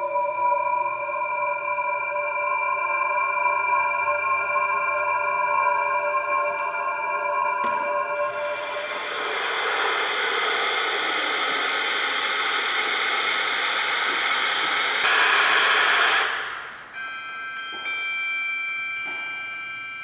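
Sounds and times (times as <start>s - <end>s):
ringing bell-like tones: 0.0s - 11.8s, 16.5s - 20.0s
hissing wash over tones: 6.0s - 16.9s.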